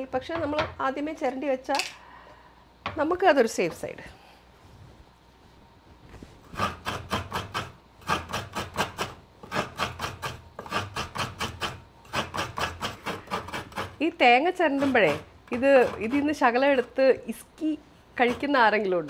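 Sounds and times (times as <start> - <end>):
coconut scraping on serrated blade: 6.5 - 19.0.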